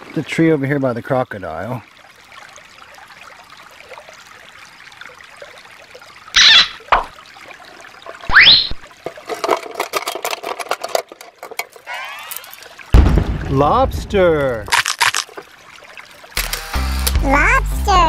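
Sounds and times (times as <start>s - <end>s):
stream trickling over rocks: 0.0s - 18.0s
rising squeak: 6.4s - 6.8s, 8.3s - 8.8s, 11.9s - 12.6s.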